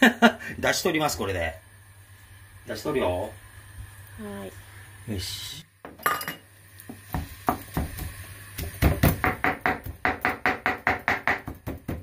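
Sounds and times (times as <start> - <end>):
knife chopping on cutting board: 7.1 - 12.0.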